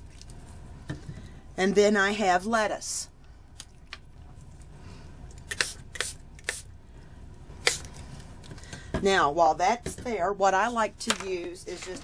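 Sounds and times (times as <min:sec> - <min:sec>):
spray bottle spritzes: 0:05.5 - 0:06.7, 0:07.6 - 0:07.9.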